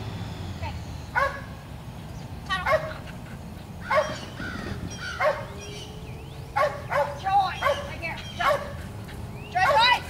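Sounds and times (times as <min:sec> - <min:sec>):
dog barking: 0:01.2 - 0:01.5, 0:02.6 - 0:03.0, 0:03.9 - 0:04.2, 0:05.1 - 0:05.5, 0:06.6 - 0:08.8.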